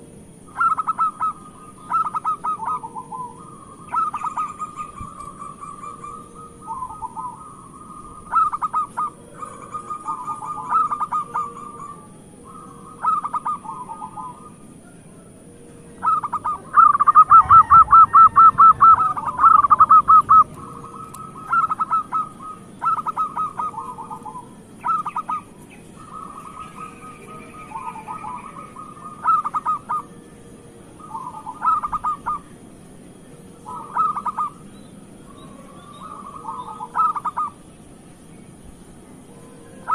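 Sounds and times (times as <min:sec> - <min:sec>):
dove cooing: 0:00.0 - 0:32.6, 0:33.3 - 0:37.6, 0:39.2 - 0:39.9.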